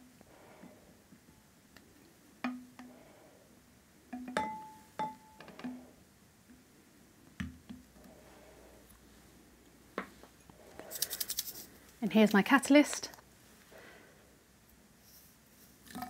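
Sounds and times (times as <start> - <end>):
bottles and glassware clinking: 4.1 - 5.8.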